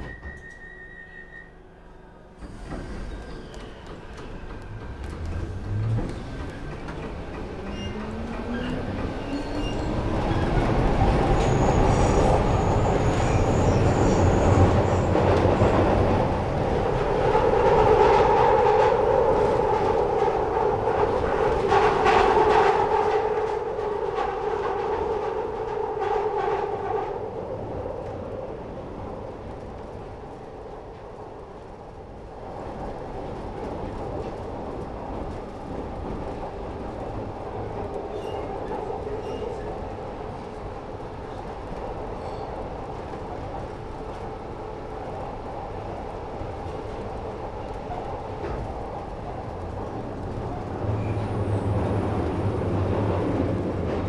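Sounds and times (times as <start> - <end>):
two-pitched train whine: 0.0 - 19.1
train passing on rails: 0.0 - 54.0.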